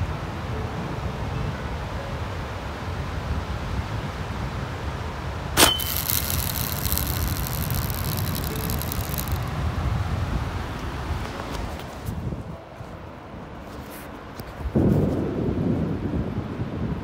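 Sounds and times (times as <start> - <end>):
wind: 0.0 - 17.0
fishing reel whirring: 5.6 - 9.5.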